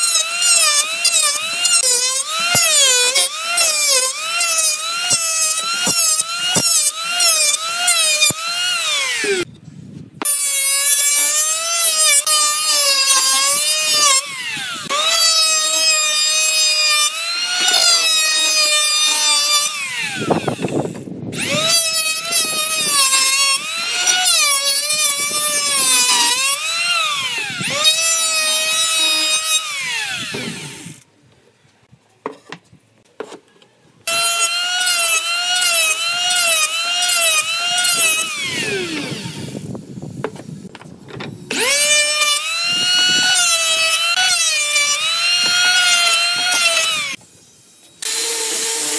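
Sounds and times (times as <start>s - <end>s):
electric planer motor whine: 41.5s - 47.2s.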